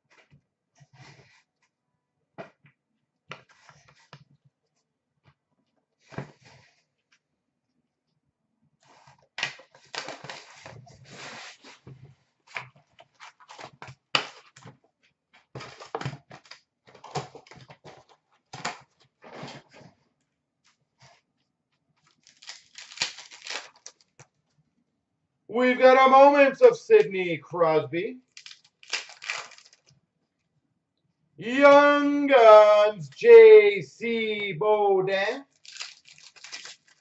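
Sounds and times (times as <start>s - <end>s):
card packs rustling and crinkling: 22.1s - 24.2s, 28.4s - 29.9s, 35.5s - 37.0s.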